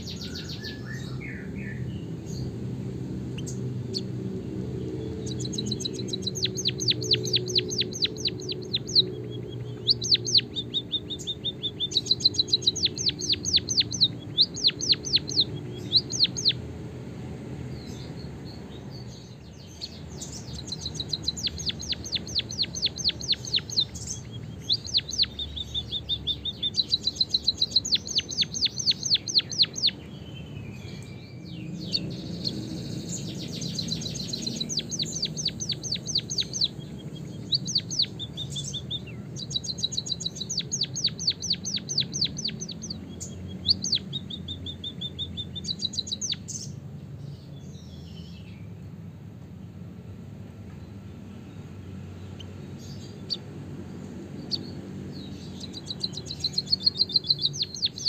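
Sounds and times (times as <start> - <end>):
bird high thin chirps: 5.0 - 16.6, 19.0 - 48.4, 54.4 - 58.0.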